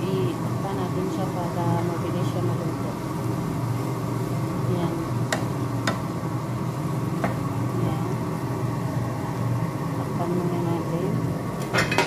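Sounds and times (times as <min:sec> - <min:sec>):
low mechanical hum: 0:00.0 - 0:12.0
wooden spatula knocking on pan: 0:05.3 - 0:06.0, 0:07.2 - 0:07.4.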